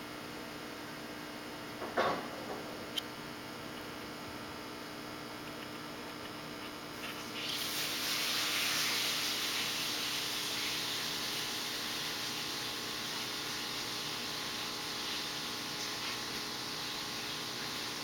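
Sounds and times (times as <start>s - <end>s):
faint electrical hum: 0.0s - 18.0s
aquarium water and bubbles hissing: 6.4s - 18.0s.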